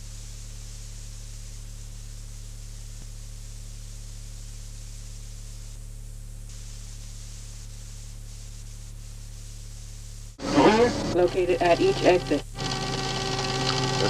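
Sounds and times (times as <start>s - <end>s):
low mains hum: 0.0s - 14.0s
tape hiss: 0.0s - 14.0s.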